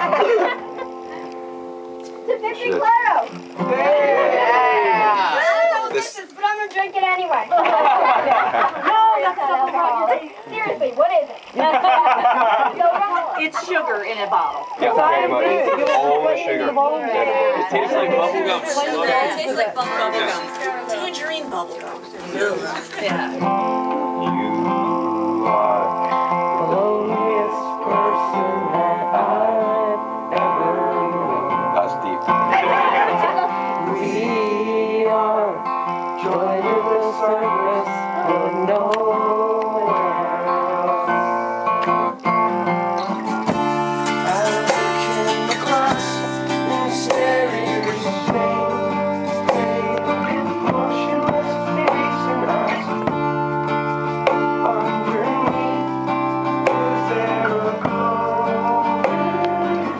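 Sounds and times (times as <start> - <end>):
acoustic guitar strumming: 0.0 - 59.9
man singing: 23.8 - 32.0, 33.3 - 41.8, 43.4 - 59.9.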